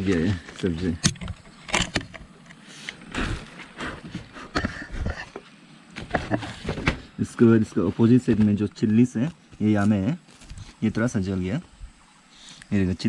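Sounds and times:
dry leaves rustling and crackling: 9.5 - 11.0.

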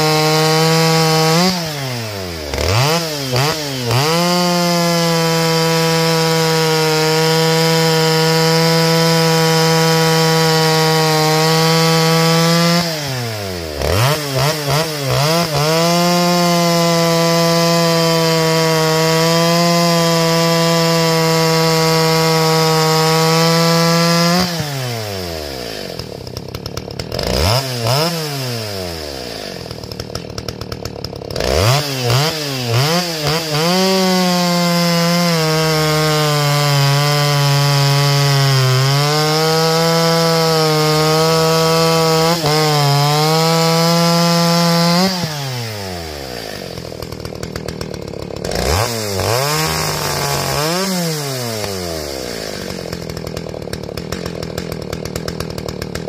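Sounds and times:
chainsaw cutting logs: 0.0 - 56.0
chainsaw idling: 0.0 - 56.0
chainsaw throttle blips: 0.0 - 56.0.

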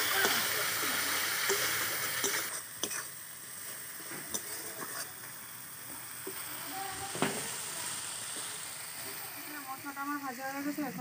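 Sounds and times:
spices sizzling in a pan: 0.0 - 11.0
steel spatula scraping pan: 4.3 - 5.2.

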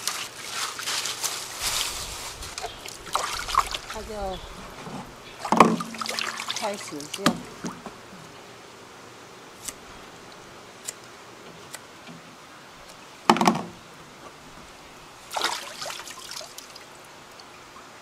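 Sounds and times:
water trickling in a basin: 1.6 - 8.0, 15.2 - 17.9.

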